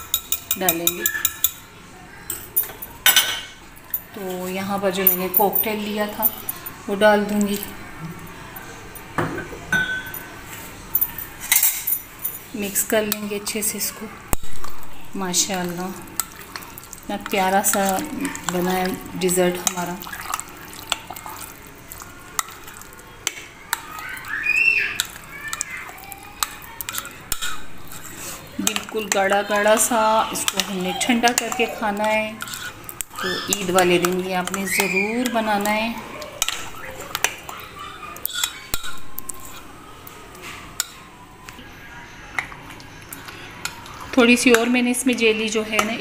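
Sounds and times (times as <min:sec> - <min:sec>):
spoon clinking against glass: 0:00.0 - 0:01.6, 0:09.7 - 0:10.3
faint background music: 0:00.0 - 0:46.0
spoon squelching in custard: 0:15.6 - 0:41.1.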